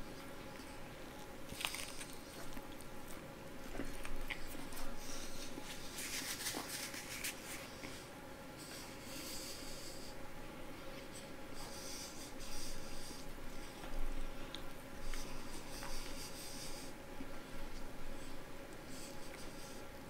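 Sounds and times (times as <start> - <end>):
person chewing crunchy food: 0.5 - 7.9.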